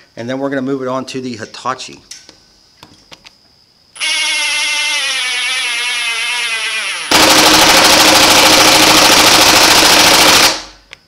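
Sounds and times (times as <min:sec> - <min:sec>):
impact driver motor whine: 0:04.0 - 0:10.5.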